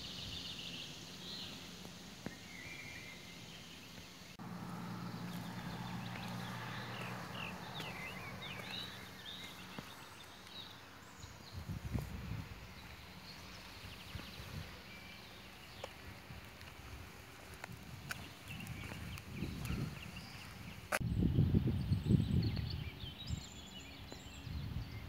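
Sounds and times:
small bird chirping: 5.1 - 17.0.

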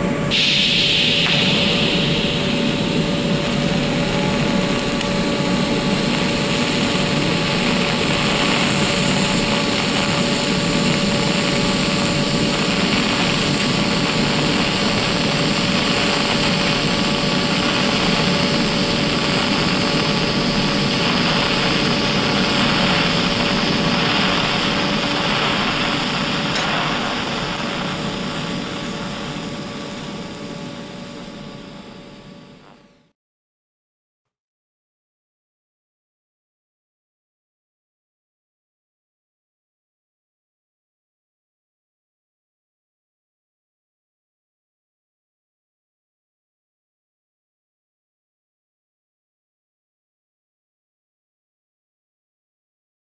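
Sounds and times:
welding arc hissing: 0.3 - 32.8.

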